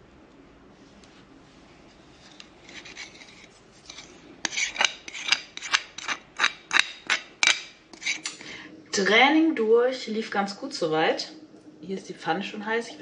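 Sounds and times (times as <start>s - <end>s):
kitchen utensil scraping: 2.2s - 8.4s.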